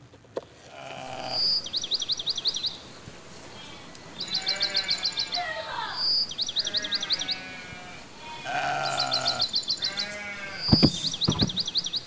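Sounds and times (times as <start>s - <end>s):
goats bleating: 0.6s - 1.6s, 3.5s - 6.0s, 6.6s - 10.9s
bird chirping: 1.0s - 12.0s
low thumps: 10.6s - 11.8s.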